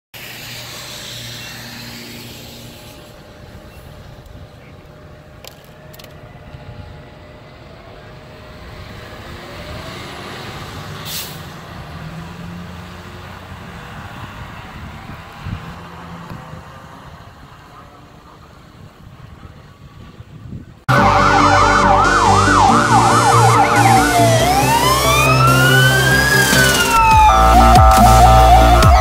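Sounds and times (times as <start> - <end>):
tyres hissing on wet pavement: 0.2 - 3.3, 10.9 - 11.7
diesel engine accelerating: 0.9 - 19.1, 20.9 - 29.0.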